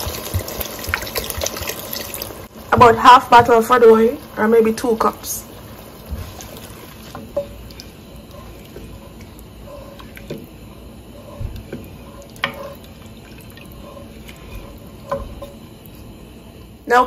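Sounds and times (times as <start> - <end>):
liquid sloshing in pot: 5.4 - 16.6.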